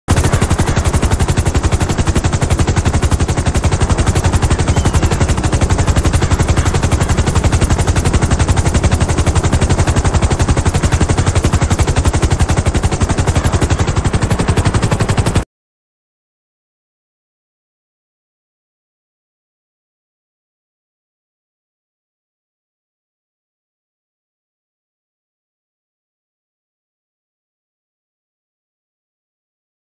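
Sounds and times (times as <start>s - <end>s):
helicopter rotor chop: 0.1s - 15.4s.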